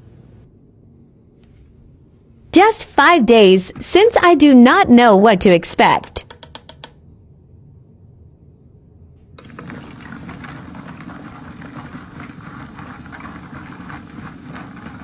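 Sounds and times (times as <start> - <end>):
motor hum: 9.4 - 15.0.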